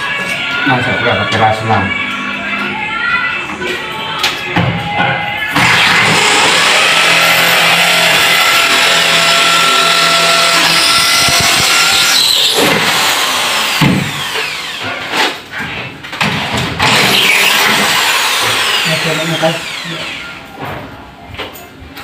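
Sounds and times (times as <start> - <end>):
electric drill whining: 5.5 - 15.0, 16.8 - 20.4.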